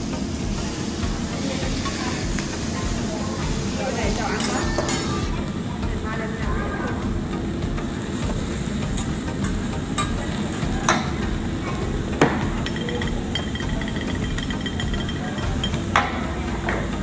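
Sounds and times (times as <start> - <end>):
food sizzling on a griddle: 0.0 - 17.0
metal spatula clinking on steel: 12.6 - 16.2.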